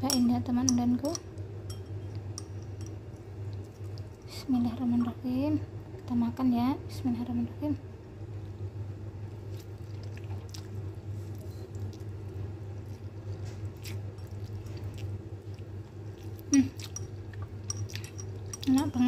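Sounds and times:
steady low hum: 0.0 - 19.0
person chewing noodles: 9.4 - 18.6.

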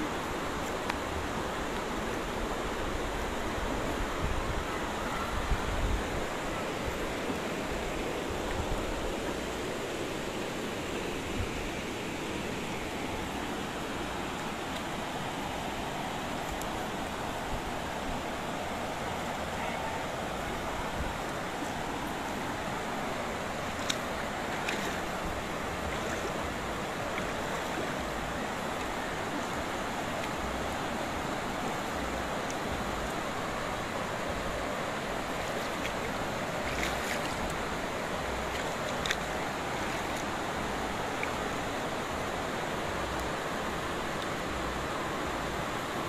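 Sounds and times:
rain on car and pavement: 20.3 - 45.8.

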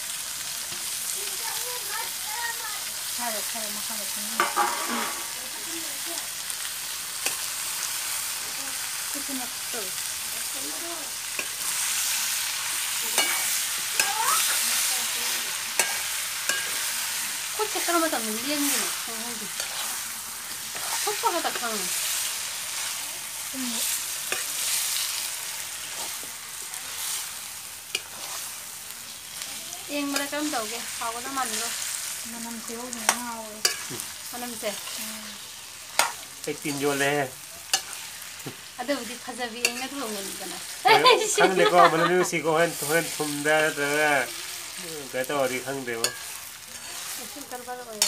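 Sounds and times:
curry sizzling in a metal pan: 0.0 - 48.0
metal spoon scraping a pan: 4.2 - 5.5, 6.6 - 8.9, 10.4 - 40.7, 45.4 - 48.0.

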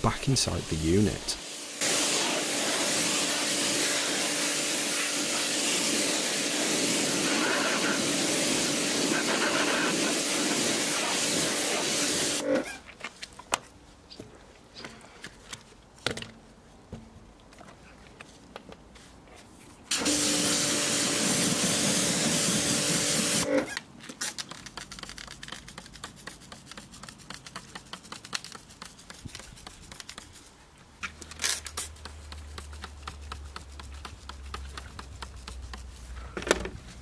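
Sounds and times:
pressure washer spraying: 1.2 - 12.4, 19.9 - 23.5.

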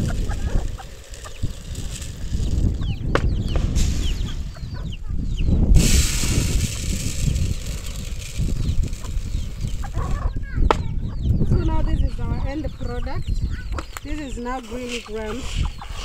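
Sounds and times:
beans pattering into a basin: 0.0 - 2.8, 5.8 - 10.2
wind buffeting microphone: 0.0 - 16.0.

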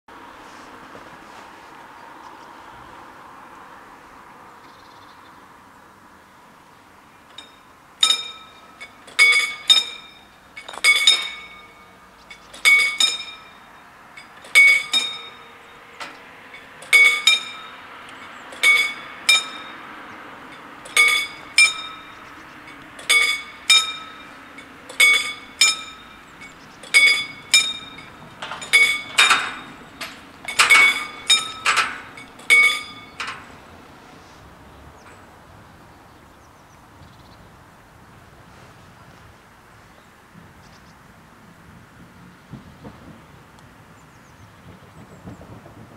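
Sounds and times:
level crossing warning bells: 7.2 - 34.0.

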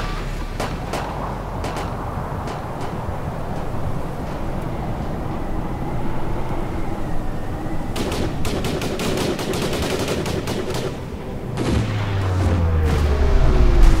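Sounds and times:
steady whirring noise: 0.0 - 14.0
rifle gunfire volleys: 8.0 - 12.4
deep low rumble: 11.9 - 14.0.

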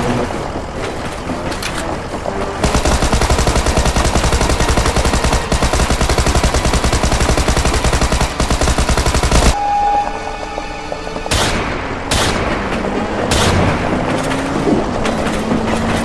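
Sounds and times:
machine-gun fire: 2.6 - 9.6.

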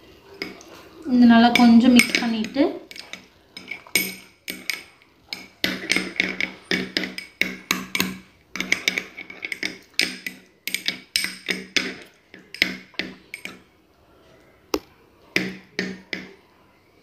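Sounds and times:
metal spoon clinking glass bowl: 1.3 - 13.7.

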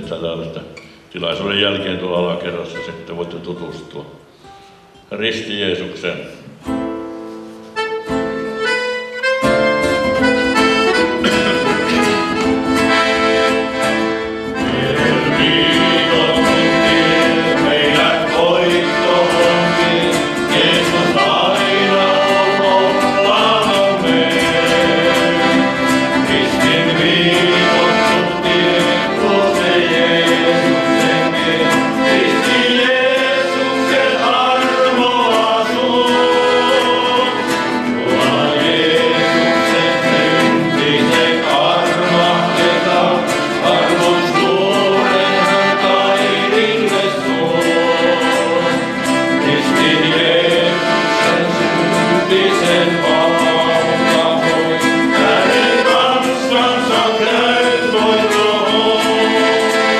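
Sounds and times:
acoustic guitar: 0.0 - 59.9
button accordion: 7.2 - 59.9
men singing together: 14.6 - 59.9.

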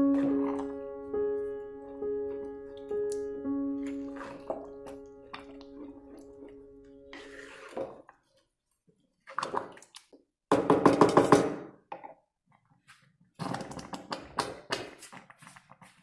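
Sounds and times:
wooden spoon scraping metal pot: 3.9 - 8.3.

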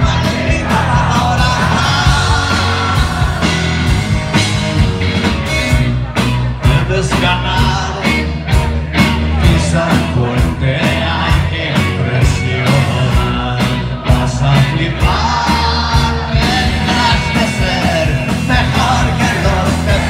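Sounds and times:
drum hits: 0.0 - 5.9
live rock band playing: 0.0 - 20.0.

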